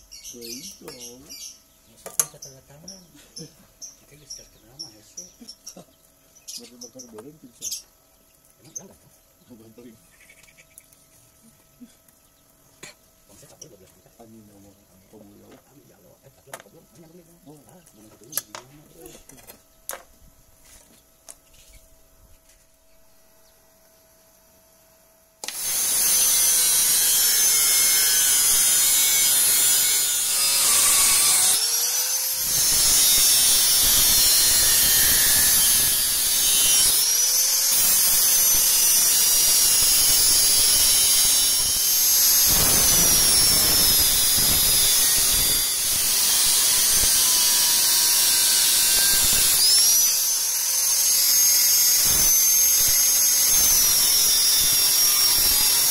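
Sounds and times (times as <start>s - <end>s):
angle grinder cutting steel: 25.4s - 55.9s.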